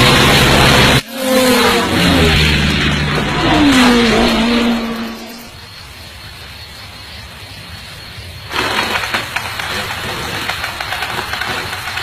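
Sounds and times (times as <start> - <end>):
race car engines passing by: 0.0 - 5.6.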